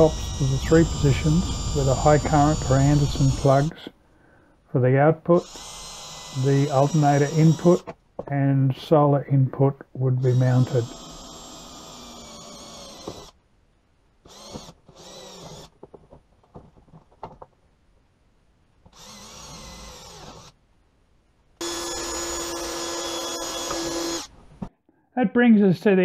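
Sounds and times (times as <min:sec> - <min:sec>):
cordless drill boring plastic: 0:00.0 - 0:03.7, 0:05.3 - 0:08.0, 0:10.2 - 0:13.4, 0:14.2 - 0:15.8, 0:18.9 - 0:20.6, 0:21.6 - 0:24.4.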